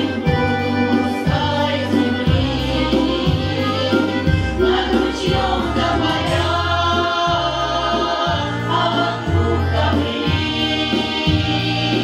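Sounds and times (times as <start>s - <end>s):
instrumental accompaniment: 0.0s - 12.0s
women's choir singing folk song: 0.0s - 12.0s.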